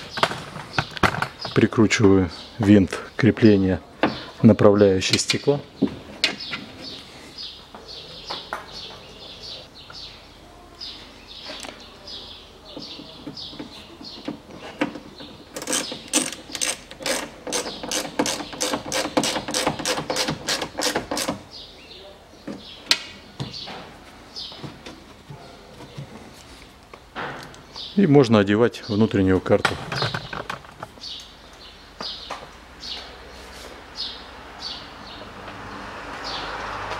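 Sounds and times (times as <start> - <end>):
hand ratchet clicking: 15.6 - 21.4.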